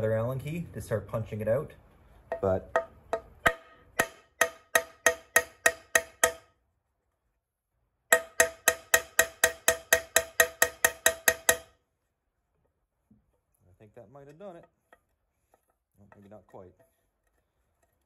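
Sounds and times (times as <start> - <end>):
hammer tapping on metal punch: 2.3 - 6.5, 8.1 - 11.7.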